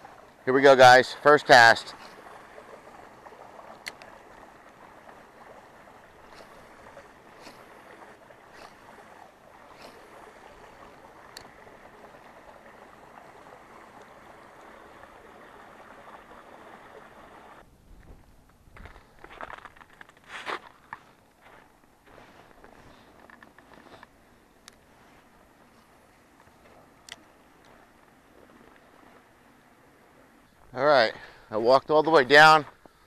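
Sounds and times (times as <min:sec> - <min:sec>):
running water: 0:00.0 - 0:33.0
fishing reel clicking: 0:03.8 - 0:04.1.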